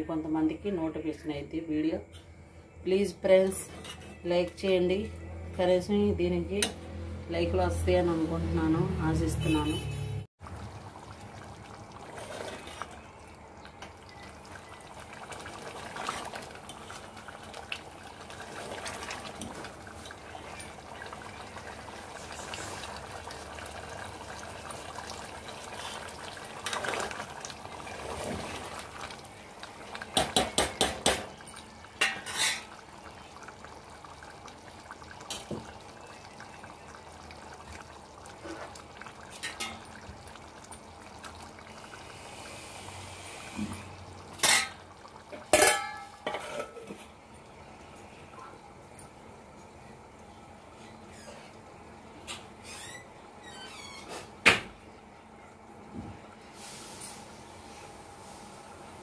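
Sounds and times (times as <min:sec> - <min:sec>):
metal plate clanking on pot: 0:45.4 - 0:47.0
spoon clinking on metal pot: 0:45.6 - 0:46.8.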